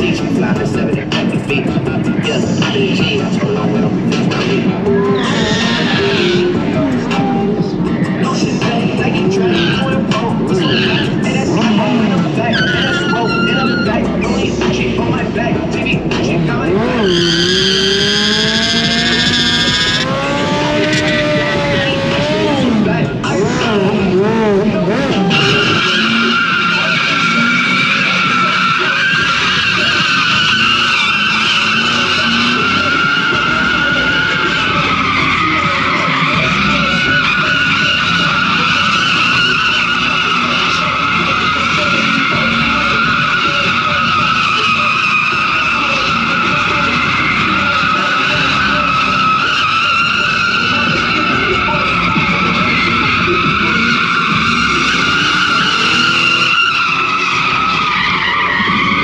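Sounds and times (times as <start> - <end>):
car engine running hard: 0.0 - 59.0
tyres squealing: 0.0 - 59.0.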